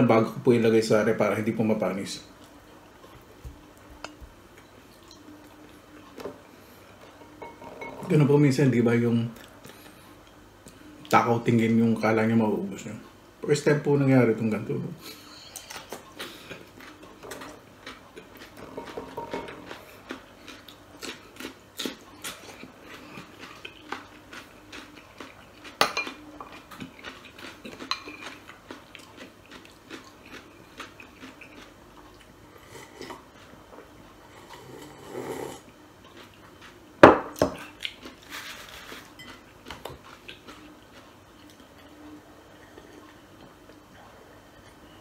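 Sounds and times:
chewing: 15.4 - 36.9, 37.6 - 45.0
slurp from a bowl: 34.4 - 35.7.

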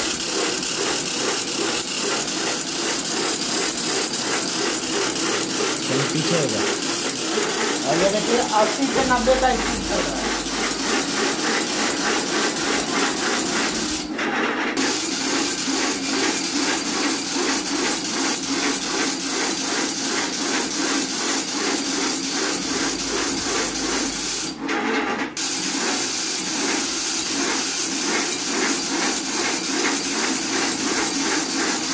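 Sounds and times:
machine clattering: 0.0 - 15.0.

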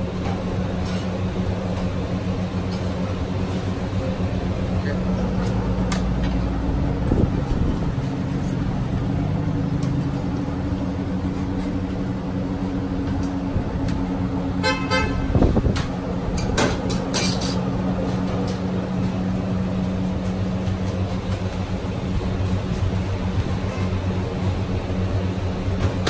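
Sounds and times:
street traffic and machinery hum: 0.0 - 26.0
car horn toot: 14.6 - 15.5.

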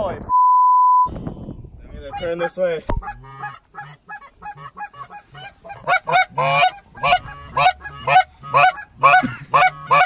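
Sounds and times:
goose honking and clucking: 2.0 - 10.0.

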